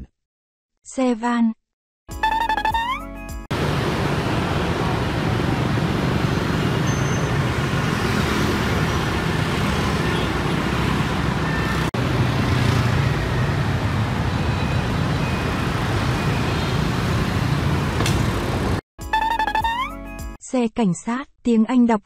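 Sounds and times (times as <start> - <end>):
motorbike and car engines: 3.5 - 18.8.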